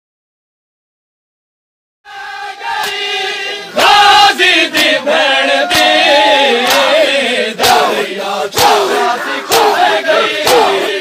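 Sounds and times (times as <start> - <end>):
crowd of men chanting: 2.1 - 11.0
sharp slaps: 2.8 - 3.1, 5.7 - 6.0, 6.6 - 7.0, 7.6 - 10.9.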